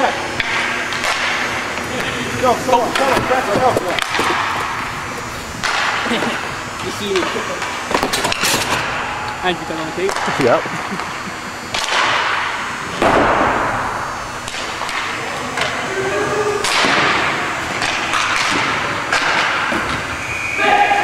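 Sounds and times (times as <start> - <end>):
hockey sticks cracking on puck: 0.4 - 6.4, 11.7 - 13.2, 14.4 - 15.8, 16.6 - 20.2
puck banging into boards: 0.4 - 6.4
players shouting: 1.8 - 7.7, 15.1 - 18.1, 20.2 - 21.0.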